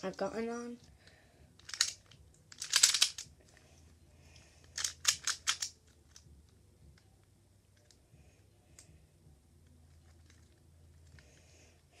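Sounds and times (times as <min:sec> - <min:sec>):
plastic puzzle clicking turns: 0:01.6 - 0:03.3, 0:04.6 - 0:06.3.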